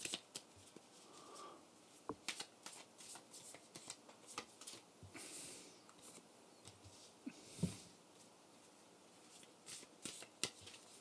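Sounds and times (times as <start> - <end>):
cards clicking and rustling: 0.0 - 0.9, 2.2 - 4.9, 9.3 - 11.0.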